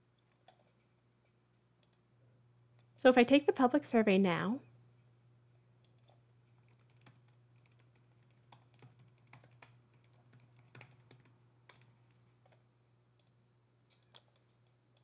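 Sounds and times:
low steady hum: 0.0 - 15.0
computer keyboard typing: 5.8 - 12.2.

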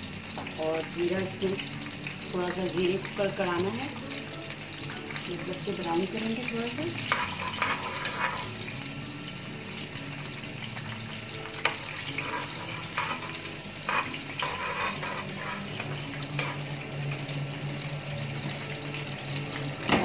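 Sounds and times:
seeds sizzling in hot oil: 0.0 - 20.0
metal spoon scraping pan: 6.9 - 8.7, 11.5 - 16.9.

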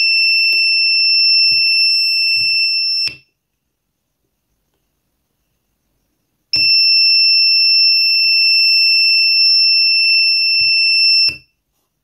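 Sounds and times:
electronic buzzer beep: 6.5 - 11.5.

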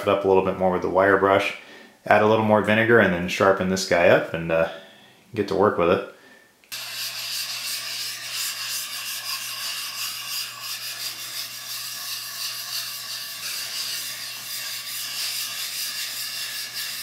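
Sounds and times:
blade scraping on whetstone: 6.7 - 17.0.

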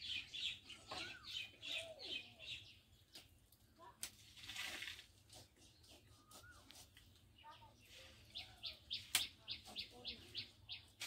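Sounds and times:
birds chirping and calling: 0.0 - 3.4, 5.3 - 11.0
blade rasping through poultry: 5.0 - 7.3.

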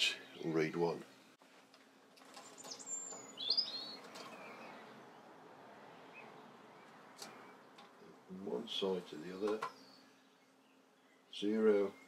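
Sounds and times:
bird chirping: 2.2 - 5.4, 6.0 - 12.0.

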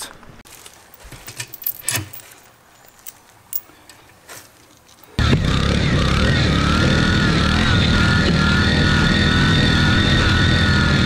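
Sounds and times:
hand tools clicking on metal: 1.0 - 5.2
small engine running loud: 5.2 - 11.0.

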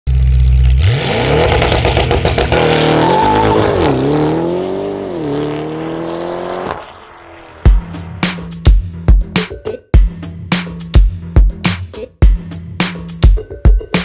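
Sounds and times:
car engine revving and accelerating: 0.2 - 8.2.

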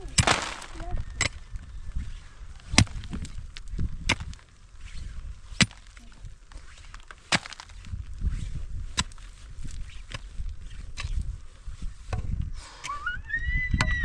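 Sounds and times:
loud sharp blows: 0.1 - 1.0.

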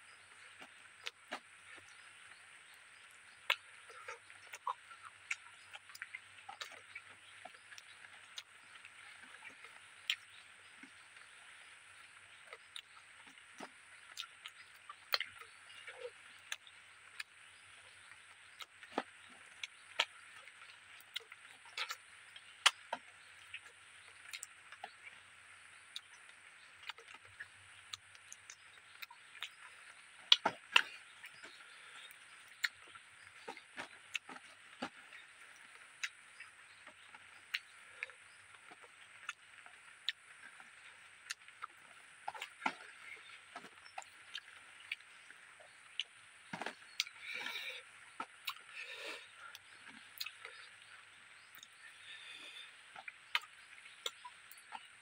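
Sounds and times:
wet chewing and lip smacks: 0.3 - 55.0.

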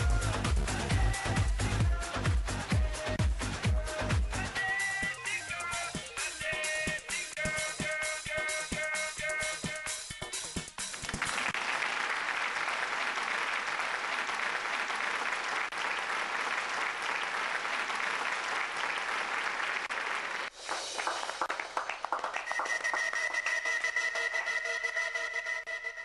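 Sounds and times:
crowd applauding: 10.9 - 25.8.

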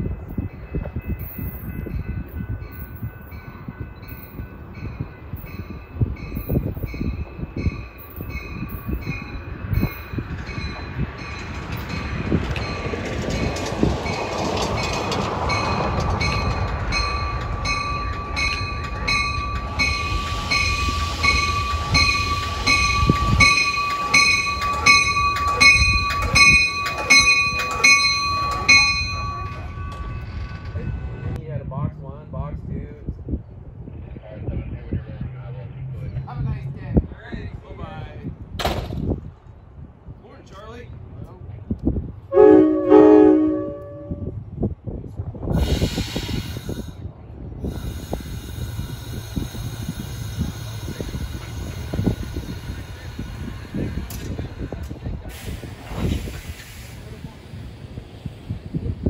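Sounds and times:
crossing bells dinging: 0.0 - 31.4
train rumble: 0.0 - 59.0.

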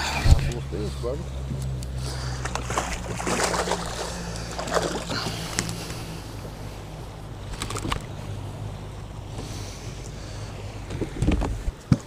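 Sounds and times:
water splashing and sloshing: 0.0 - 8.6
steady low hum: 0.0 - 12.0.

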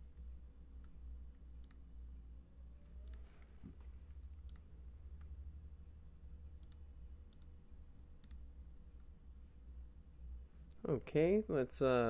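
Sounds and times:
low steady hum: 0.0 - 12.0
faint computer mouse clicks: 1.6 - 1.8, 4.4 - 5.3, 6.6 - 7.5, 8.2 - 8.4.

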